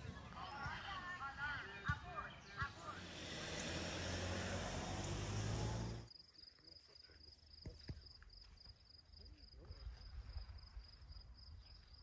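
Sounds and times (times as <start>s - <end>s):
insect chirping: 3.1s - 12.0s.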